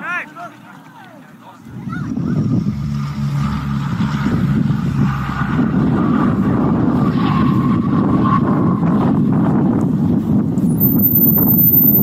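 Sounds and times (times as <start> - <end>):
engine whine: 1.8 - 8.2.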